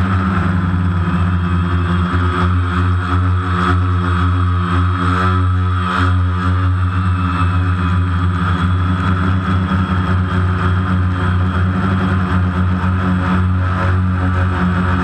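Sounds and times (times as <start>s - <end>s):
drone motors humming and whining: 0.0s - 15.0s.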